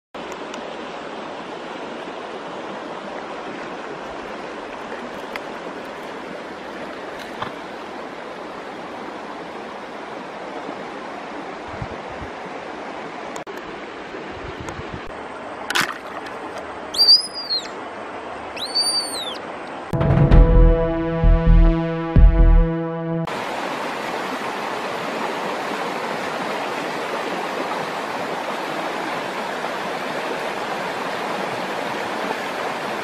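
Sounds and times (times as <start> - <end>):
flowing stream: 0.2 - 20.0, 23.2 - 33.0
whistled tone: 17.0 - 17.7, 18.6 - 19.4.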